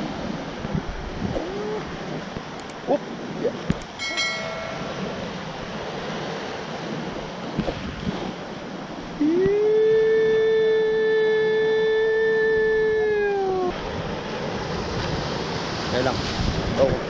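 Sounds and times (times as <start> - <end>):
sea surf washing over rocks: 0.0 - 17.0
sharp clicks: 2.6 - 2.8, 3.7 - 4.0
brief chime: 4.0 - 5.3.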